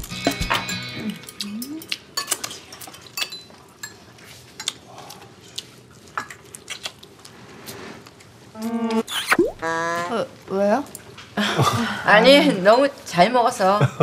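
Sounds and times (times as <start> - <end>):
utensils clinking on ceramic bowls: 0.3 - 4.0.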